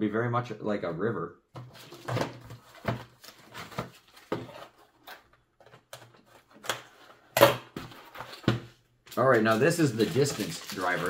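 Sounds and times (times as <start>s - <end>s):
packaging rustling: 1.7s - 5.3s, 9.1s - 11.0s.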